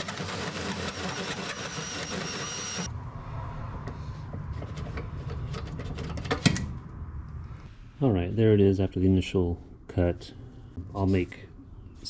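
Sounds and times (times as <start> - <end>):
power drill cutting steel whining: 0.0 - 2.9
low hum: 2.8 - 12.0.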